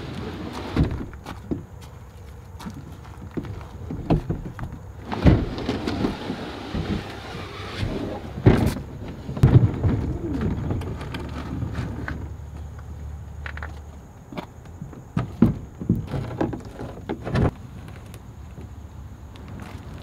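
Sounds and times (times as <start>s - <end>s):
plastic kayak scraping: 0.0s - 1.1s, 5.0s - 12.4s
kayak thumping on pavement: 2.6s - 12.4s, 13.6s - 18.0s.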